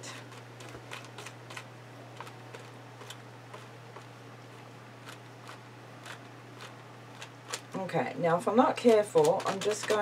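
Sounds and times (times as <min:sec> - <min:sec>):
steady low hum: 0:00.0 - 0:10.0
fingers dabbing wet paint: 0:08.8 - 0:10.0.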